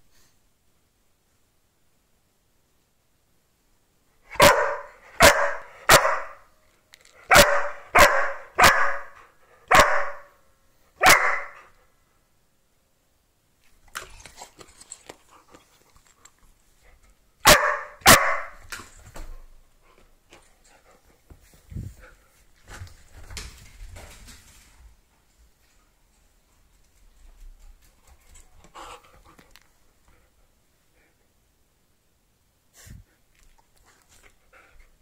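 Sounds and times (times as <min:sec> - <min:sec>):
dog barking sharply: 0:04.3 - 0:06.5, 0:07.3 - 0:10.4, 0:11.0 - 0:11.7, 0:17.4 - 0:18.6.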